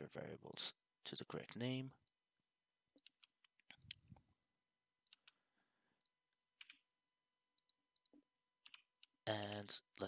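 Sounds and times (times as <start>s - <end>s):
computer keyboard typing: 7.6s - 9.6s.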